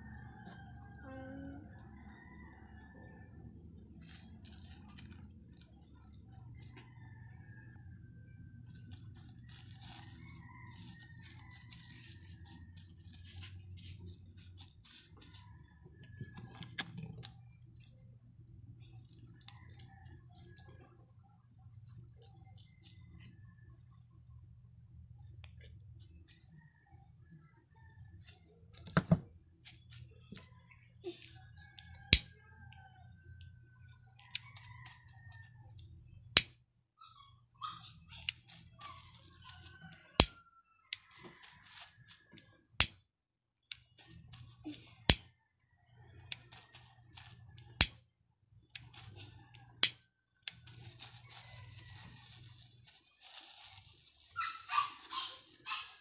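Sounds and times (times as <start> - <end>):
scissors snipping: 4.0 - 6.7, 8.7 - 15.4, 42.8 - 43.0, 45.1 - 45.3, 46.3 - 48.0, 48.7 - 54.4
plastic mesh rustling: 8.7 - 15.4, 38.5 - 39.9, 41.1 - 42.2, 50.5 - 56.0.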